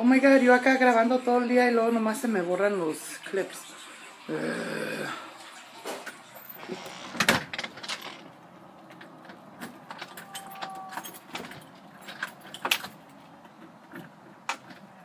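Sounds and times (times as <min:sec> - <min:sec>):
keys jangling: 0:09.9 - 0:13.2.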